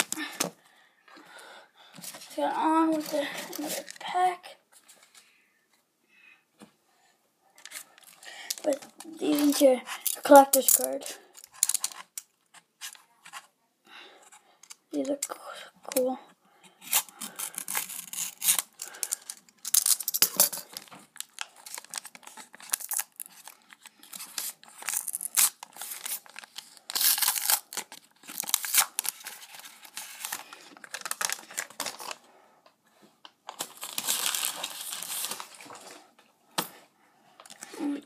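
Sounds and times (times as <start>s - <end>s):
foil wrapper crinkling: 16.8s - 32.2s, 33.5s - 35.9s
foil wrapper tearing: 16.9s - 32.1s, 33.6s - 35.6s.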